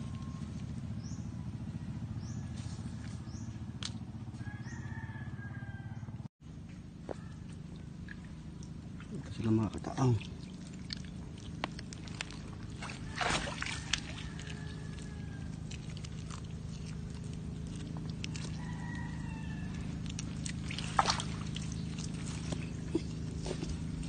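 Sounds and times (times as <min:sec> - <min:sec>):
low hum: 0:00.0 - 0:24.0
water sloshing: 0:06.9 - 0:24.0.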